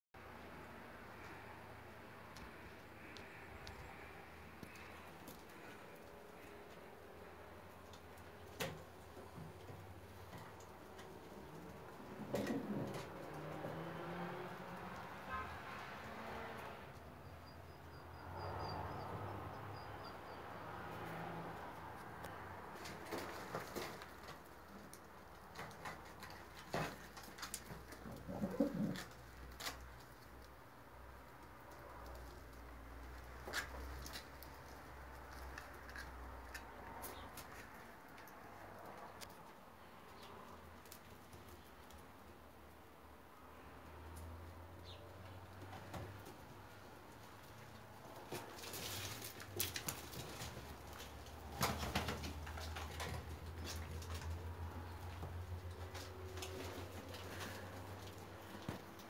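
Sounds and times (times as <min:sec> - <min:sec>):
pigeons cooing: 0:11.3 - 0:13.8, 0:27.6 - 0:29.4
wings flapping: 0:48.6 - 0:53.8.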